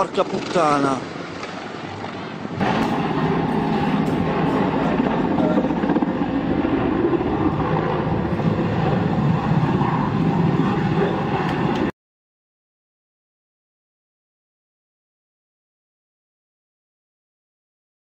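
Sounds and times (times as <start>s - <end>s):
helicopter rotor and turbine noise: 0.0s - 12.0s.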